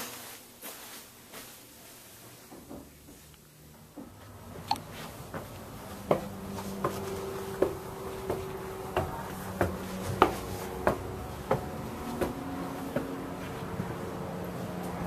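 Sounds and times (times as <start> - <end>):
footsteps climbing stairs: 3.9 - 15.0.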